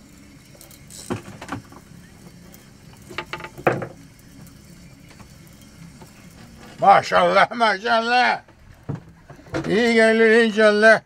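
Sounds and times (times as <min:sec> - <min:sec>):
boat engine idling: 0:00.0 - 0:10.2
knocks and clatters: 0:00.6 - 0:01.9, 0:03.0 - 0:04.1, 0:08.4 - 0:09.8.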